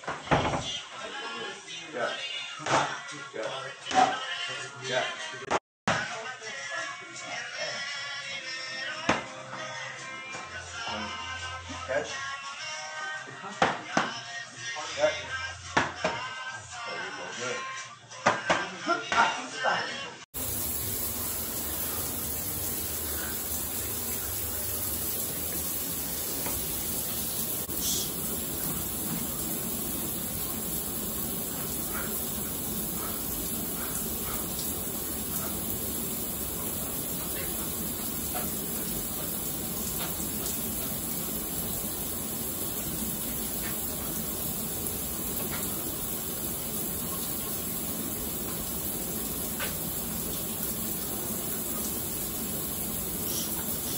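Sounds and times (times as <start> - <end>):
shower water spraying: 20.4 - 53.9.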